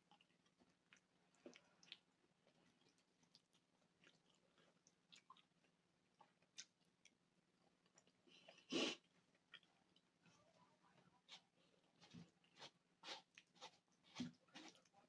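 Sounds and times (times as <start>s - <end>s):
close chewing: 0.0s - 15.0s.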